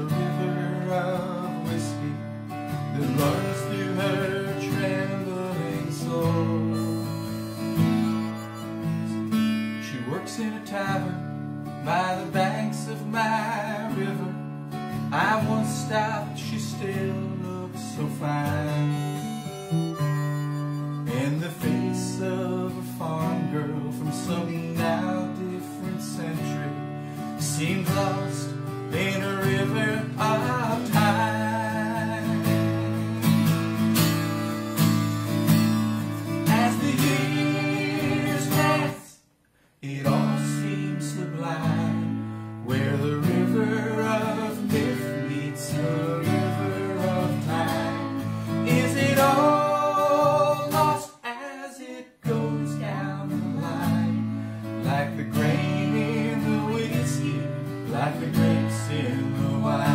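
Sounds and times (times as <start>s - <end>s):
acoustic guitar strumming: 0.0s - 39.2s, 39.8s - 51.2s, 52.2s - 59.9s
harmonica melody: 2.9s - 9.9s, 18.2s - 22.5s, 29.2s - 39.0s, 41.4s - 51.0s, 55.4s - 59.9s.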